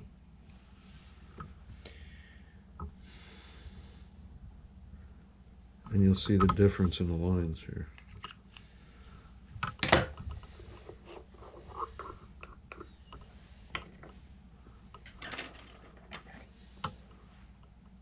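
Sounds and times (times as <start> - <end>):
tools clicking and scraping: 7.9 - 8.7, 9.6 - 14.2.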